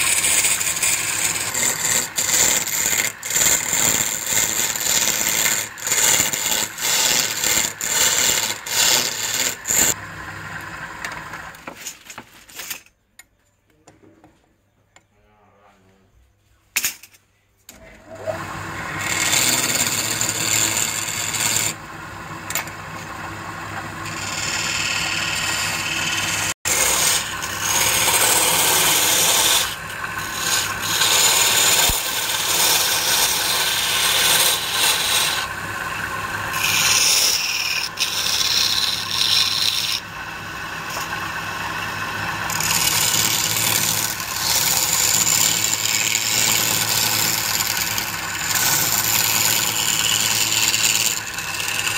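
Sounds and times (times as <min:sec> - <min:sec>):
lathe humming: 0:00.0 - 0:11.6, 0:18.1 - 0:51.9
turning tool scraping wood: 0:00.0 - 0:12.8, 0:17.7 - 0:51.9.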